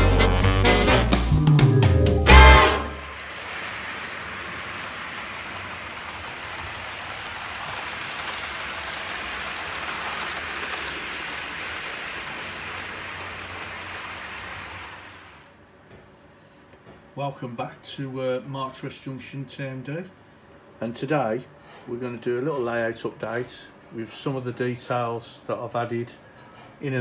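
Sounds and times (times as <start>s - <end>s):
jingle note: 1.4s - 3.0s
model trains rushing on track: 3.0s - 15.5s.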